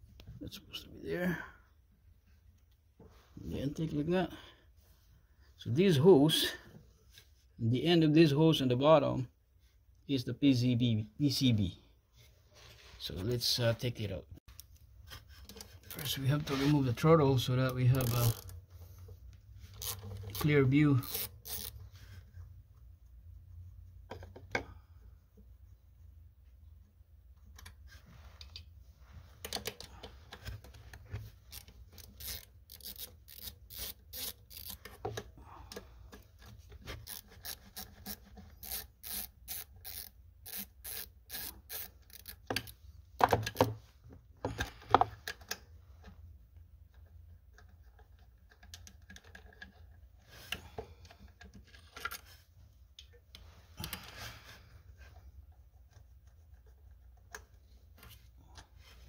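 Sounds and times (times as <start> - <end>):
tools rubbing and clinking: 14.6 - 18.7, 19.6 - 22.3, 29.4 - 35.4, 36.0 - 42.8
ratchet wrench clicking: 17.9 - 18.5, 19.8 - 21.8, 31.5 - 34.9, 37.0 - 42.8.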